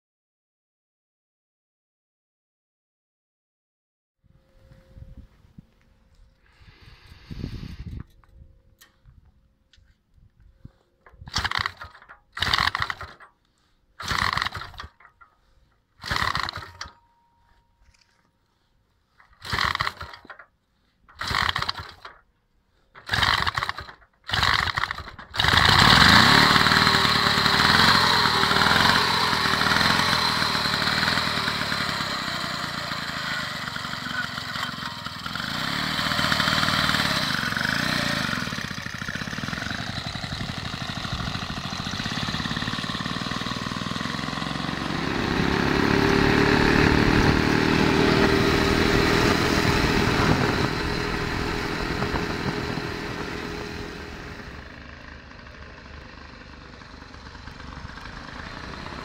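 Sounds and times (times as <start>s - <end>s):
motorcycle engine sputtering: 11.0s - 13.4s, 14.0s - 17.1s, 19.2s - 22.3s, 22.9s - 59.0s
motorcycle engine running: 11.2s - 13.4s, 14.0s - 15.2s, 16.0s - 18.1s, 19.2s - 20.5s, 21.1s - 22.2s, 23.0s - 59.0s.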